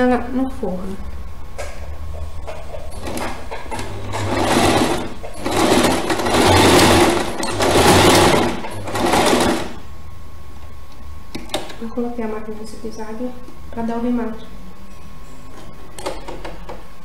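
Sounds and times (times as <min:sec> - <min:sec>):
sewing machine stitching: 0:02.9 - 0:09.8.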